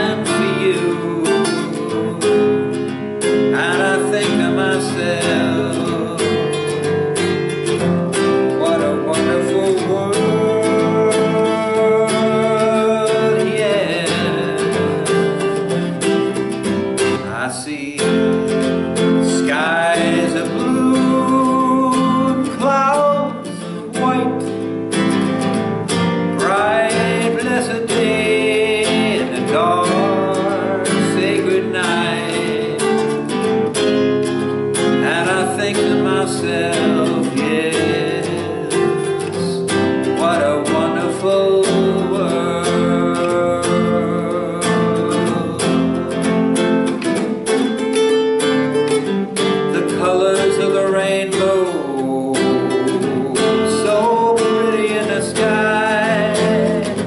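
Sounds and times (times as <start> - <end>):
classical guitar playing: 0.0 - 57.0
man singing: 0.0 - 57.0.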